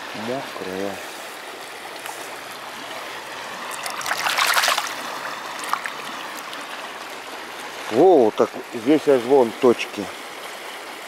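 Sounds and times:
river water flowing: 0:00.0 - 0:11.0
water dripping: 0:03.6 - 0:06.7
splashing of stone rinsed by hand: 0:03.7 - 0:05.0.

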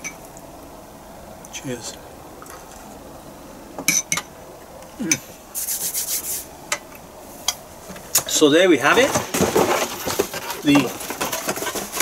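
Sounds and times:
palms rubbing together: 0:05.6 - 0:06.5.

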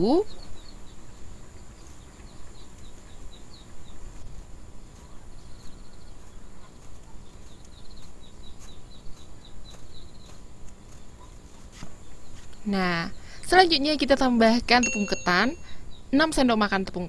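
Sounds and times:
small bird chirping: 0:00.0 - 0:17.0.

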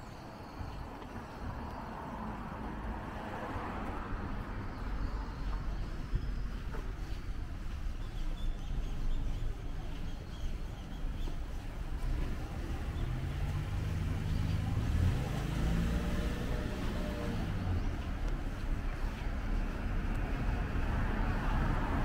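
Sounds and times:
low rumble of traffic: 0:00.0 - 0:22.0
car engine hum passing: 0:11.3 - 0:22.0.

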